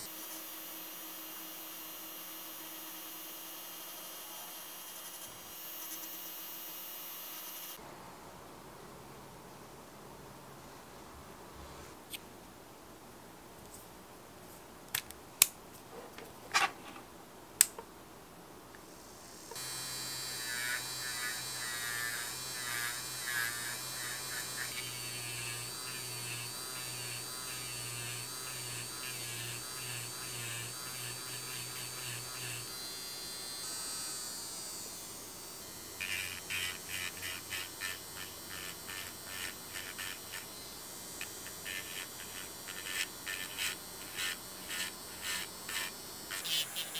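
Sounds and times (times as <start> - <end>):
nail drill motor whine: 19.5 - 46.9.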